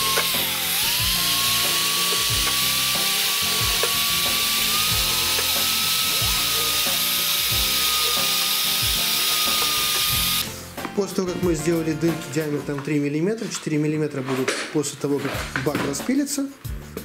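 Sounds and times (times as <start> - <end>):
electric drill whining: 0.0 - 10.6
background music with beat: 0.0 - 13.0, 15.4 - 17.0.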